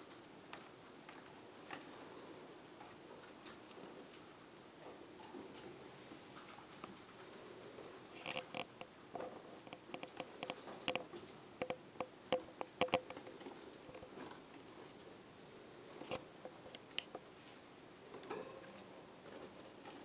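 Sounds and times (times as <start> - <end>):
rodents clicking and tapping in cage: 8.1 - 14.6.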